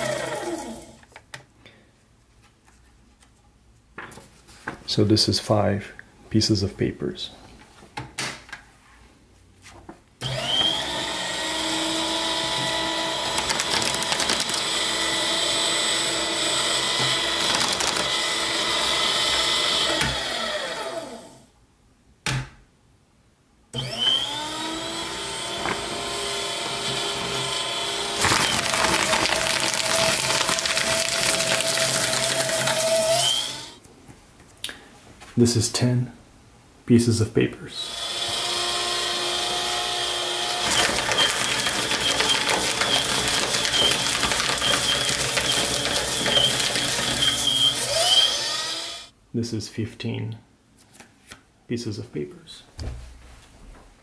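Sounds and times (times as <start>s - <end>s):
paper shredder motor whining: 0.0s - 1.0s, 10.2s - 21.4s, 23.8s - 33.8s, 37.8s - 49.1s.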